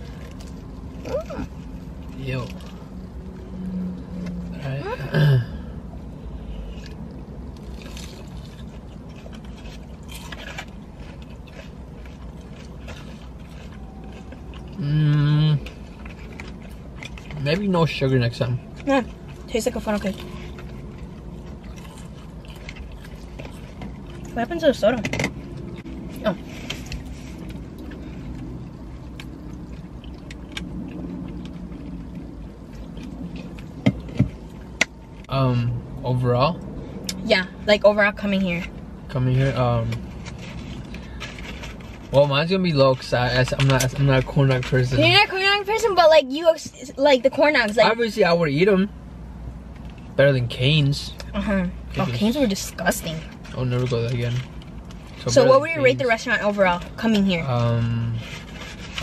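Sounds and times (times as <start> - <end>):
car idling inside cabin: 0.0 - 3.6
people chewing wetly: 0.0 - 4.4, 5.8 - 24.4, 25.4 - 35.3
low steady hum: 0.0 - 59.0.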